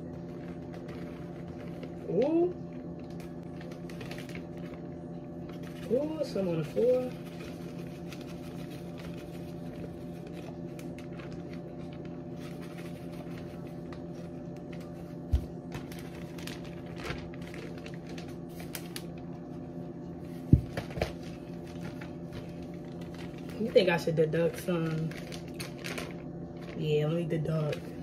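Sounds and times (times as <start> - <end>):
steady pitched hum: 0.0 - 28.0.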